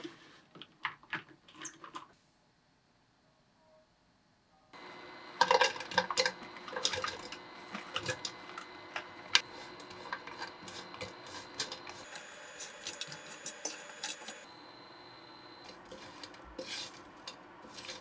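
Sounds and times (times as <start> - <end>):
spoon clicking and scraping chips: 0.0 - 2.1, 5.3 - 14.5, 15.2 - 18.0
dry slices rattling into pan: 15.7 - 18.0.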